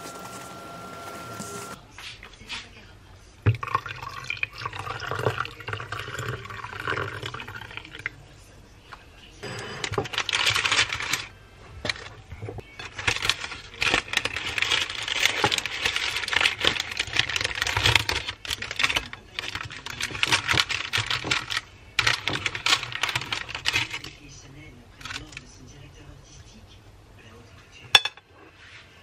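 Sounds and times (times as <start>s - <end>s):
paper crinkling and rustling: 0.0s - 1.8s, 9.5s - 24.3s.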